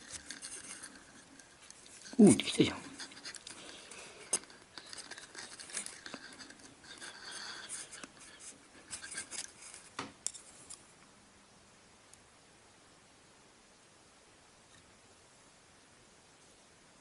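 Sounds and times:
soft clicks and rustles: 0.0 - 11.2.

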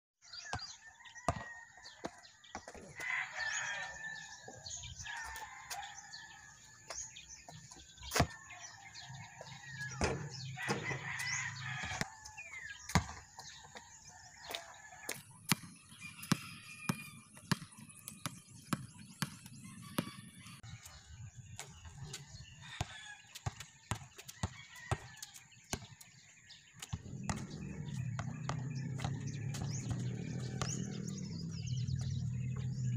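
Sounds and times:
basketball bouncing on concrete: 0.5 - 4.2, 6.8 - 20.6, 22.8 - 32.9
rooster crowing: 0.8 - 2.1, 2.9 - 6.7, 8.3 - 12.7
ball hitting the rim: 9.6 - 12.0, 12.9 - 13.3, 26.9 - 31.6.

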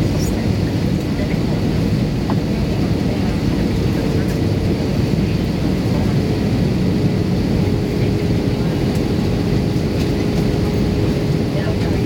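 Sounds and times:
aircraft cabin engine and airflow noise: 0.0 - 12.0.

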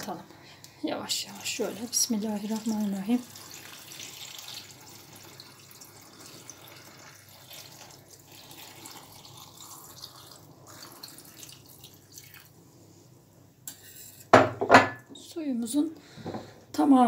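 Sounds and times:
liquid trickling into a jar: 1.7 - 12.6.

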